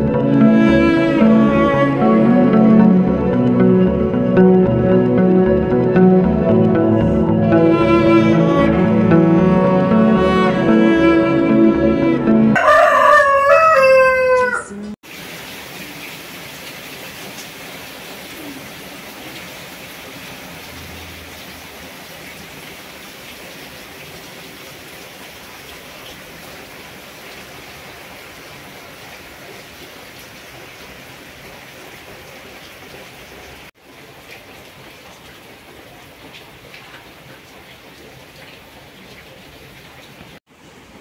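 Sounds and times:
steady rain falling: 15.0 - 41.0.

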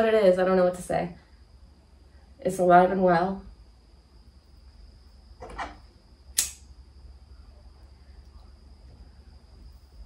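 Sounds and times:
sharp click: 6.3 - 6.7.

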